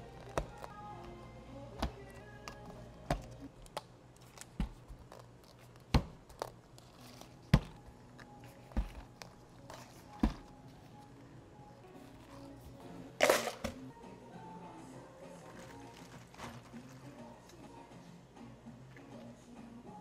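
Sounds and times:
soft paper rustling: 15.3 - 17.3.

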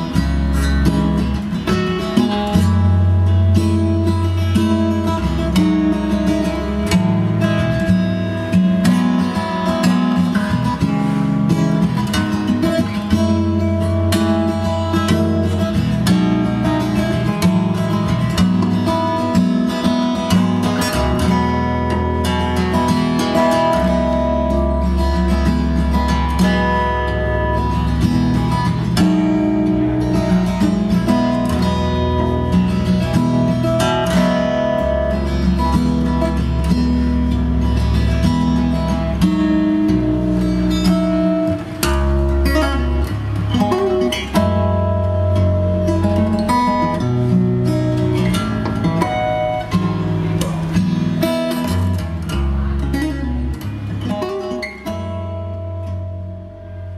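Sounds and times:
acoustic guitar music: 0.0 - 56.9.

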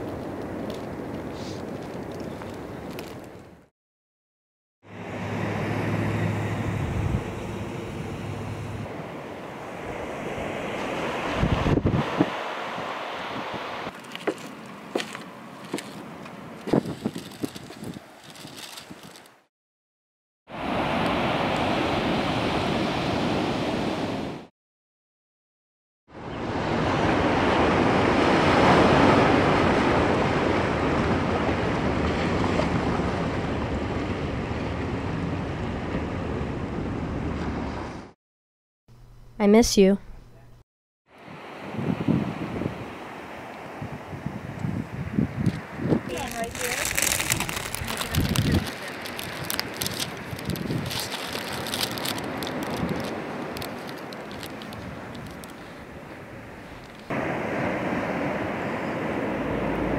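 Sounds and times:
ocean surf on beach: 4.9 - 17.1, 20.5 - 24.5, 26.1 - 38.1, 41.1 - 59.9
wind rumbling on microphone: 6.3 - 9.0, 9.8 - 19.3, 41.2 - 59.9
cellophane crinkling: 16.7 - 19.4, 46.1 - 55.8
wave breaking: 26.4 - 38.0, 46.1 - 59.9.

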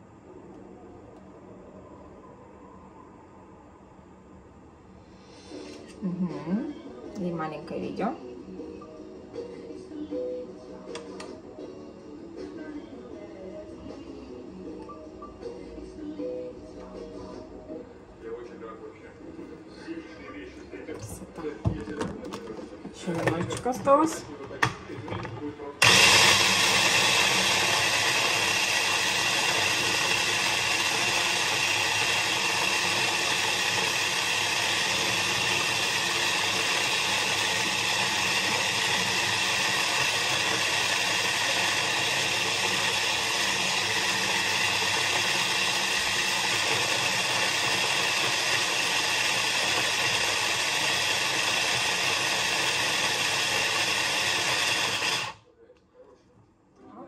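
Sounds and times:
kitchen blender running: 25.8 - 55.4.

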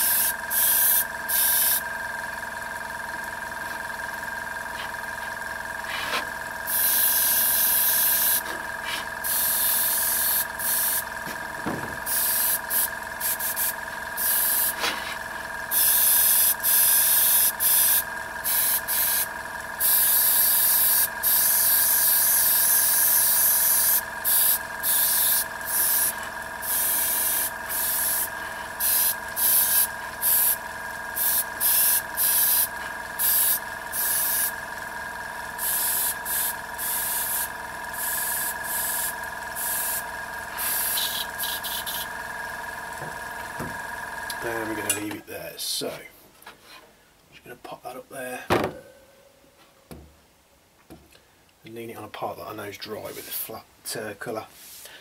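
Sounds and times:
airbrush spraying hiss: 0.0 - 1.8, 5.9 - 11.1, 12.0 - 15.0, 15.7 - 30.6, 31.2 - 34.5, 35.6 - 40.0, 40.6 - 42.1, 54.6 - 54.9
air compressor hum: 0.0 - 46.9, 48.2 - 50.2.

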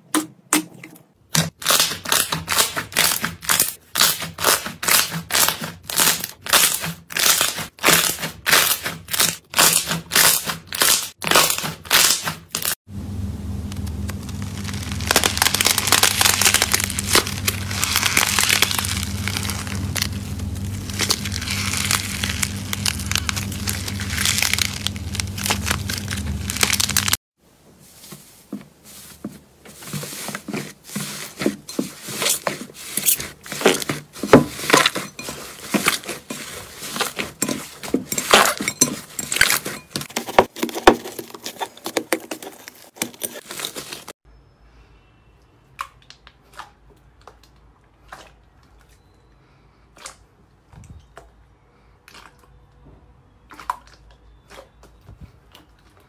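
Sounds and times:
low steady hum: 12.9 - 27.2
slime crackling and popping: 13.6 - 27.2.

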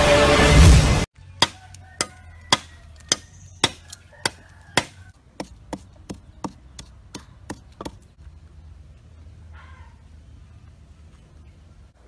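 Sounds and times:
sharp chopping strikes: 1.4 - 8.0.

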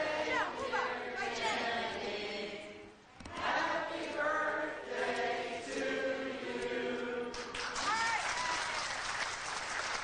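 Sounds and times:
group singing: 0.0 - 7.6.

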